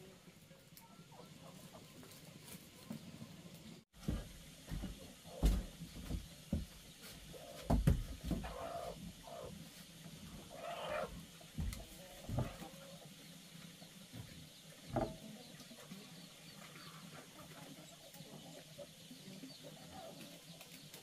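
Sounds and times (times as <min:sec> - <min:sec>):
thumps and knocks on wood: 0:04.0 - 0:06.8, 0:07.7 - 0:08.5, 0:11.6 - 0:12.6.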